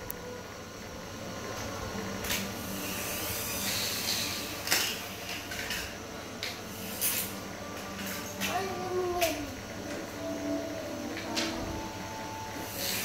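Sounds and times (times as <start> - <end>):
hissing noise: 12.6 - 13.0.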